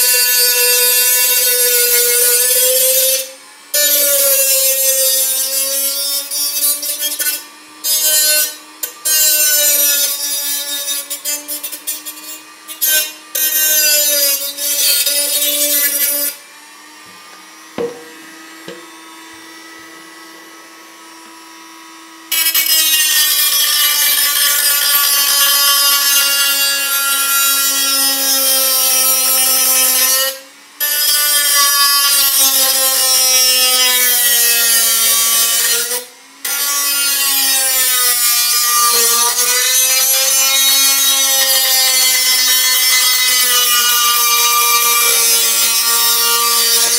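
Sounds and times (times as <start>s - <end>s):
rotary tool cutting metal: 0.0s - 19.1s, 22.3s - 46.9s.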